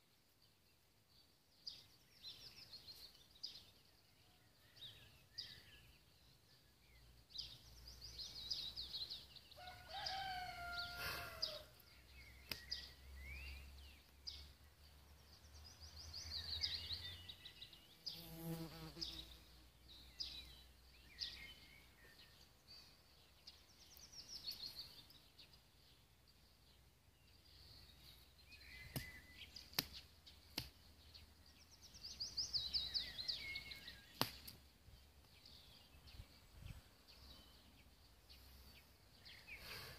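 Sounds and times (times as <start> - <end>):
songbirds trilling: 1.6 - 39.9
rooster crowing: 9.6 - 11.7.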